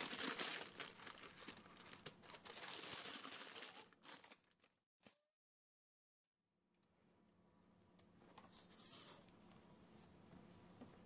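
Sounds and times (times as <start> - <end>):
parchment paper crinkling: 0.0 - 4.7.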